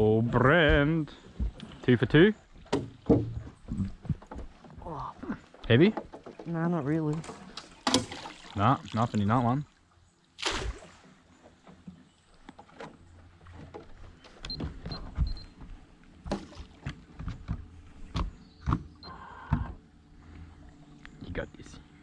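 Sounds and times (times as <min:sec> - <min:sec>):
gear knocking against hull: 0:02.6 - 0:04.9.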